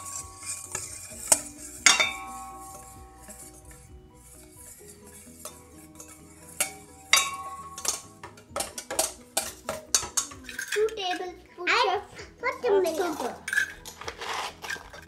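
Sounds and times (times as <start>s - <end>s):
whisk clinking against metal bowl: 0.0s - 11.2s
quiet background music: 0.0s - 15.0s.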